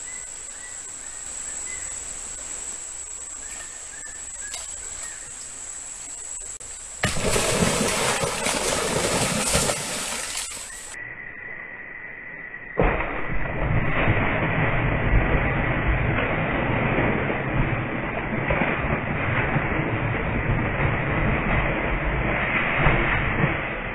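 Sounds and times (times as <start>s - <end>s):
fish splashing in water: 6.6s - 11.0s.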